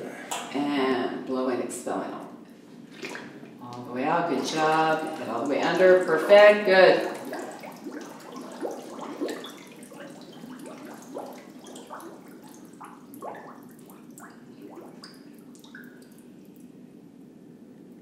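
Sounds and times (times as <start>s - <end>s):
air bubbles gurgling in water: 4.0s - 16.5s.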